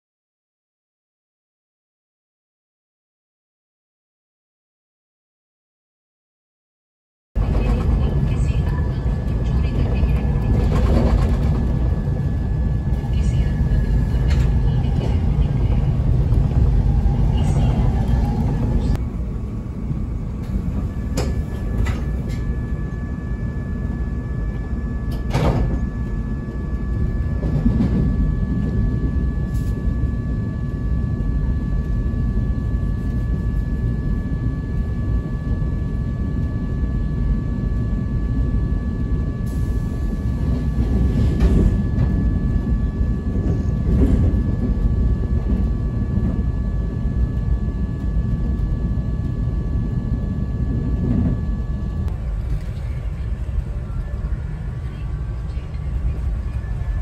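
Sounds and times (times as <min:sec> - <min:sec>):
train wheels rumbling on rails: 0:07.4 - 0:23.0, 0:23.7 - 0:35.0, 0:39.4 - 0:57.0
constant high whine: 0:07.4 - 0:57.0.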